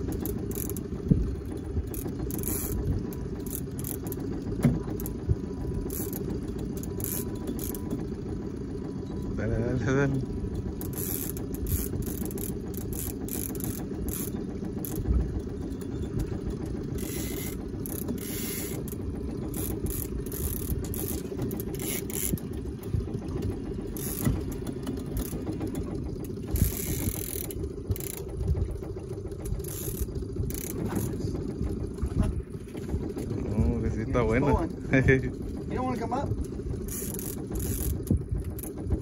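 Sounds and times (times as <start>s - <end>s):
outboard motor droning: 0.0s - 39.0s.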